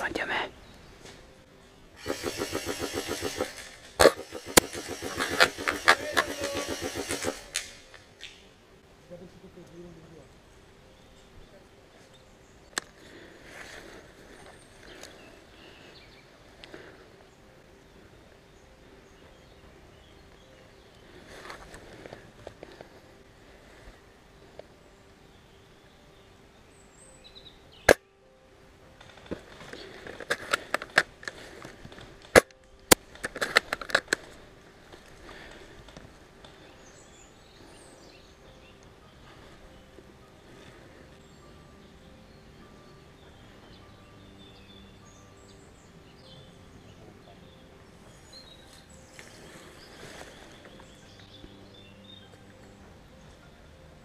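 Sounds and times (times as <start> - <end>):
airsoft gun shots: 2.0 - 7.8
airsoft gun clicks: 2.0 - 8.4, 32.2 - 34.3.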